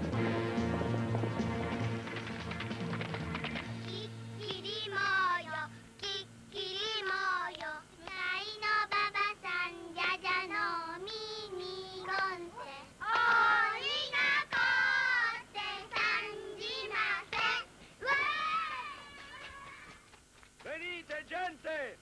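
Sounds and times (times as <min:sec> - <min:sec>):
girls singing a game song: 0:03.8 - 0:19.2.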